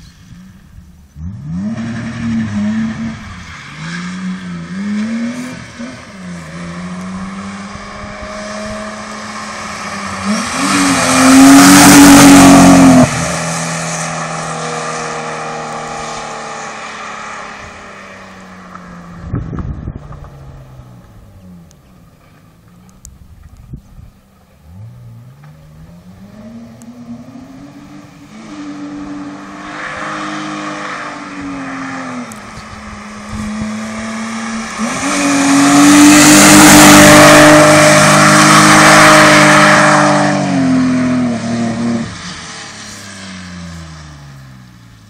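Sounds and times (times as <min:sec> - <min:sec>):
car engine revving: 0:00.0 - 0:45.0.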